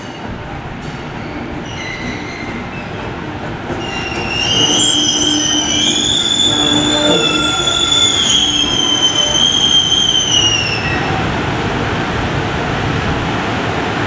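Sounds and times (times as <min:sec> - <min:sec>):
locomotive wheels rumbling on rails: 0:00.0 - 0:14.0
high wheel squeal: 0:03.8 - 0:11.2.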